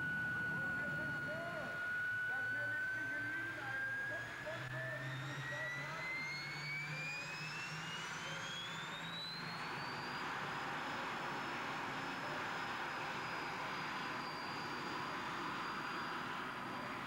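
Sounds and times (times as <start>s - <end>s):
tractor engine high whine: 0.0s - 17.0s.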